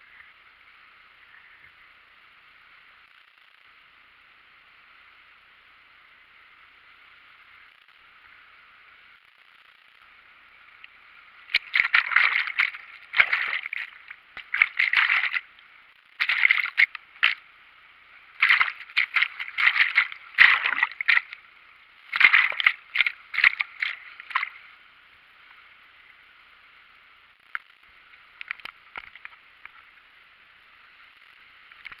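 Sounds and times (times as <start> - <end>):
faint steady hiss: 0.0 - 32.0
waterfall whitewater splashing: 11.6 - 15.5, 16.2 - 17.4, 18.4 - 21.4, 22.1 - 24.5.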